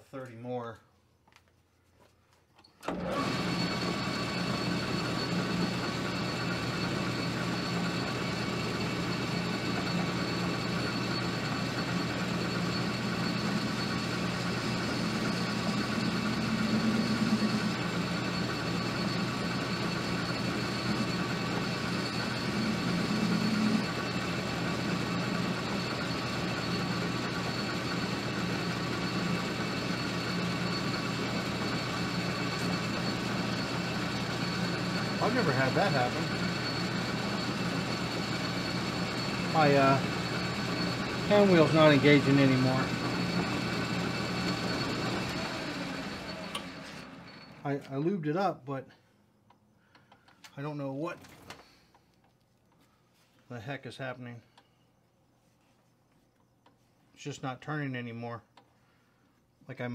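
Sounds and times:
metal lathe running: 2.9 - 47.6.

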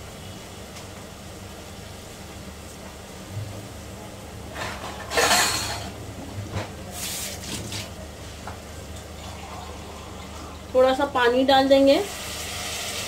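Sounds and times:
masala sizzling in a pan: 6.8 - 13.0
steady low hum: 7.9 - 12.1.

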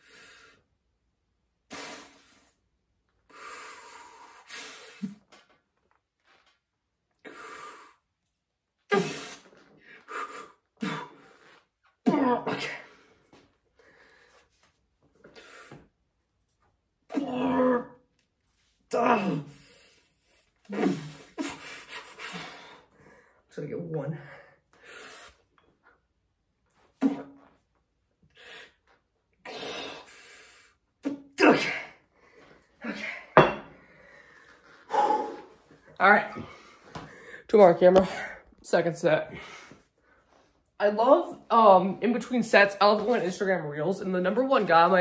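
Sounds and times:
man breathing hard: 3.3 - 5.2, 21.0 - 23.5, 32.0 - 37.5
man grunting and exhaling: 17.1 - 18.0, 18.9 - 19.7, 20.7 - 21.4, 31.0 - 32.0.

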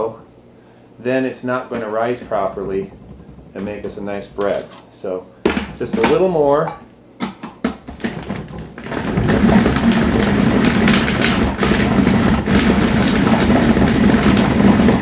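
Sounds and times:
plastic clicks and knocks: 1.7 - 4.8, 5.4 - 6.4, 7.2 - 15.0
food processor motor humming: 8.0 - 15.0.

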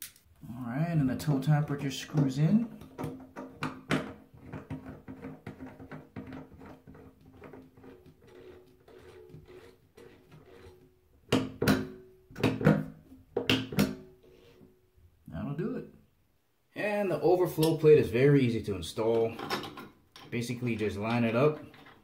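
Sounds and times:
drain stopper ticking and scraping: 1.2 - 10.8.

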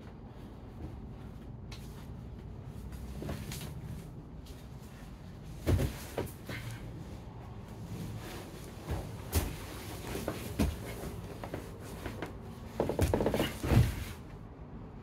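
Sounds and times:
bodies scuffing on mats: 0.2 - 6.8, 7.7 - 14.3
dull thumps on mats: 5.6 - 6.6, 8.8 - 12.2, 12.8 - 14.1.

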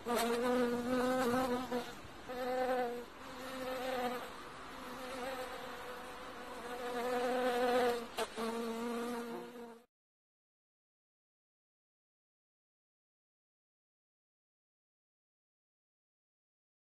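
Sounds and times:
bees buzzing: 0.0 - 9.8.

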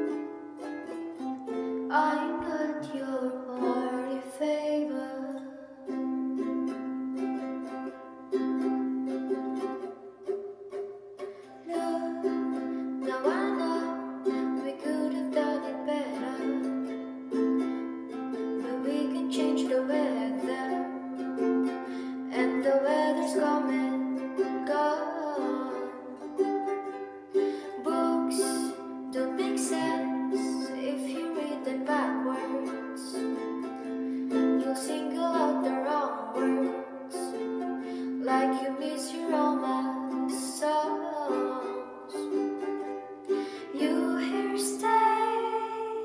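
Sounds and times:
person singing softly: 0.0 - 9.8, 11.2 - 46.0
ukulele chords: 0.0 - 46.0.

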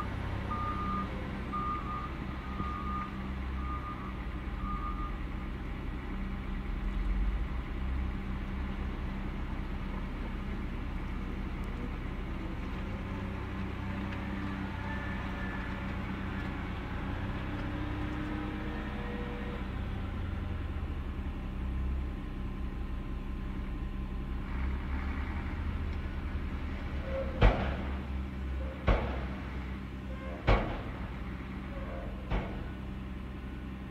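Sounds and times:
diesel truck engine idling: 0.0 - 33.9
sharp knocks: 30.4 - 31.0.

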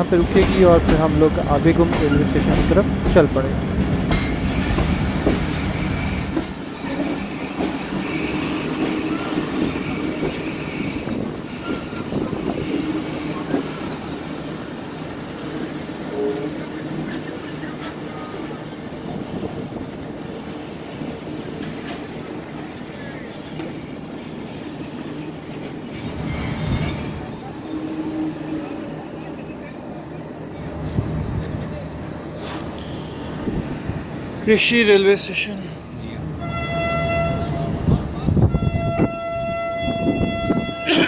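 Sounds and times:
train rumble: 0.0 - 41.0
wheels squealing metallically: 4.5 - 29.5.

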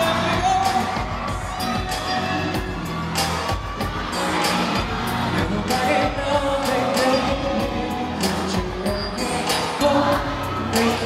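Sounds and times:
man singing into microphone: 0.0 - 1.1, 5.3 - 11.0
backing track with steady beat: 0.0 - 11.0.

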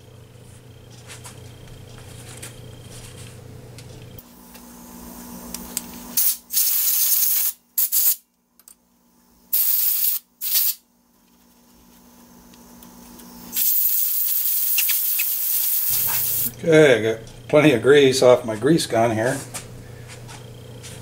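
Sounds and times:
faint steady hum: 0.0 - 6.6, 7.5 - 21.0
grease gun hissing: 9.5 - 10.8, 13.5 - 16.5.

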